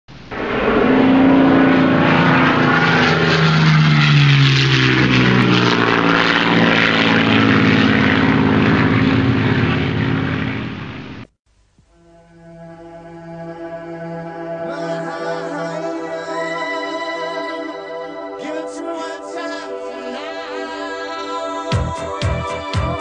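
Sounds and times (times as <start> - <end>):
model airplane engine and propeller: 0.1 - 11.3.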